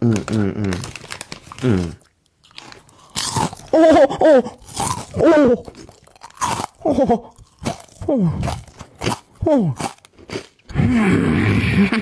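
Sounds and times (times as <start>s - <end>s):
person humming through mouth: 0.0s - 0.9s, 1.6s - 2.1s, 8.0s - 8.6s, 9.4s - 9.9s, 10.7s - 12.0s
crunching and chewing crisps: 0.0s - 3.9s, 4.5s - 10.7s.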